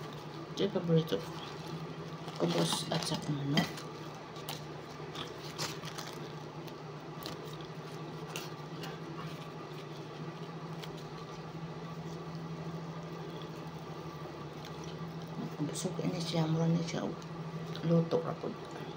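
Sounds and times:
steady low hum: 0.0 - 18.9
flatbread tearing: 1.2 - 15.5
chewing: 3.6 - 12.5, 13.1 - 15.5.

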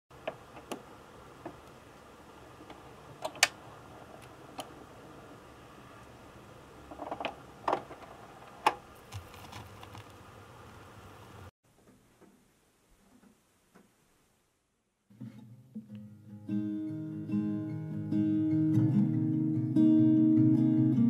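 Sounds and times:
vinyl record crackle: 0.2 - 11.5.

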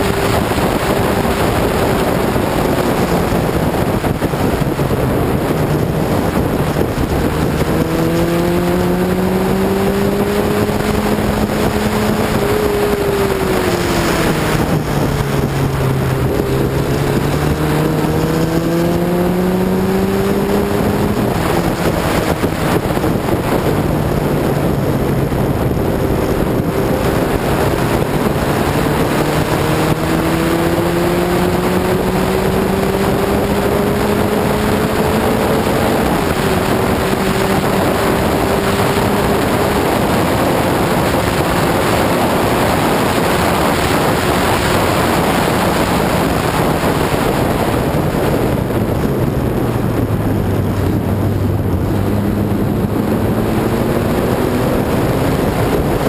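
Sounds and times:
race car engine running hard: 0.0 - 56.0
wind rush: 0.0 - 56.0.

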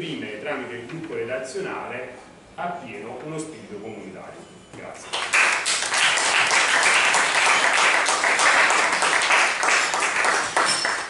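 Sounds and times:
crowd applauding: 5.1 - 11.0.

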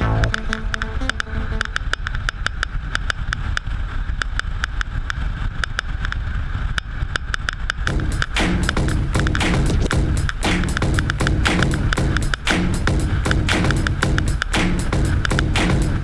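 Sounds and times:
sharp crackles: 0.0 - 12.6.

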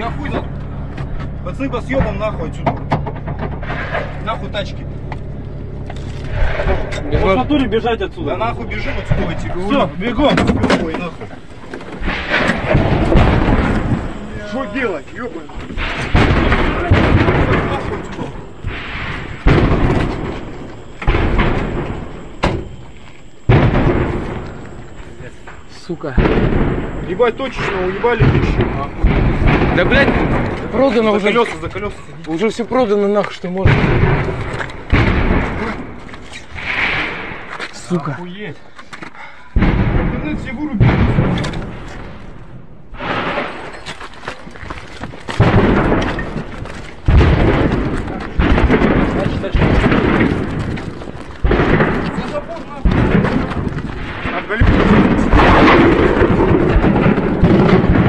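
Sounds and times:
loud blast: 0.0 - 38.0, 39.5 - 43.8, 45.3 - 58.0
explosions with long rumble: 0.0 - 38.3, 39.5 - 58.0
crackling pops of detonations: 0.0 - 38.4, 39.5 - 58.0.

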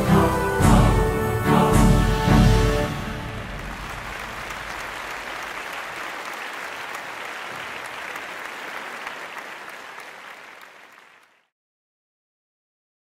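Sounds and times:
audience applauding: 3.1 - 11.5.

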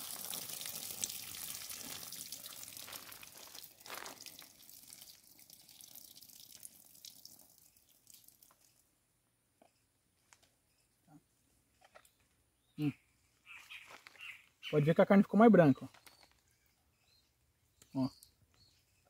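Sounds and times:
water splattering onto dirt: 0.0 - 8.7
water dripping: 0.0 - 8.8.

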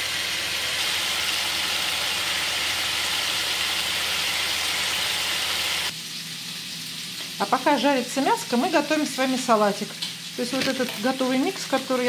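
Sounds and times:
steaks sizzling in a skillet: 0.0 - 12.0.

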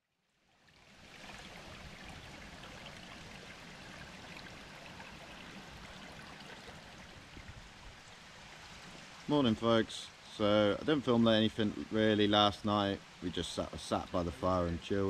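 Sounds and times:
babbling stream water: 0.2 - 15.0.

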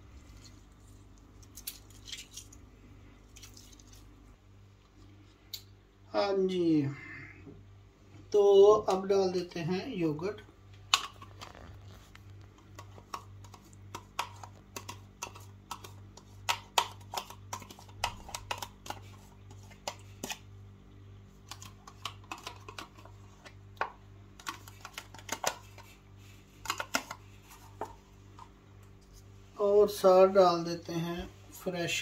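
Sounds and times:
spoon scraping plastic: 10.9 - 20.5, 21.4 - 29.3.

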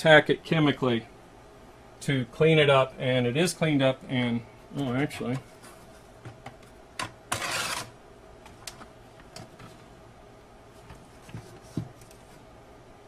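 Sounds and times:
scraping rustle: 7.3 - 7.9.

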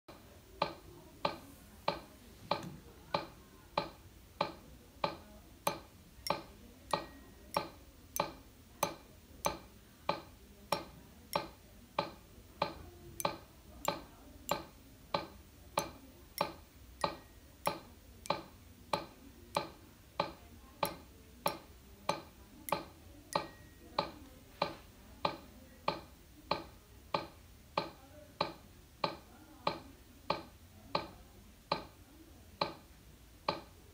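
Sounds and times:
metronome clicking steadily: 0.6 - 32.0, 32.6 - 32.8, 33.4 - 33.8.

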